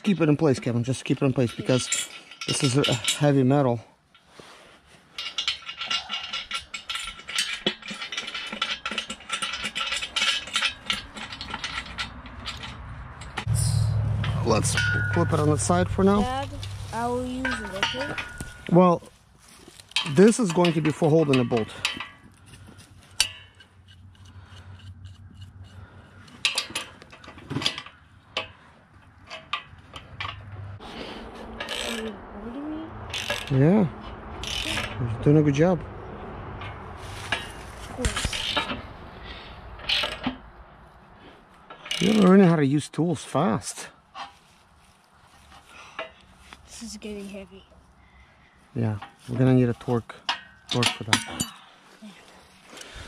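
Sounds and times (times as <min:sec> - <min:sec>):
steel hardware rattling and clicking: 0:00.0 - 0:04.4, 0:05.1 - 0:18.9, 0:19.8 - 0:32.3, 0:32.9 - 0:39.0, 0:39.6 - 0:40.5, 0:41.6 - 0:42.6, 0:48.8 - 0:51.7
wrench clinking on metal: 0:01.3 - 0:03.4, 0:05.2 - 0:13.6, 0:17.4 - 0:18.7, 0:31.6 - 0:32.1.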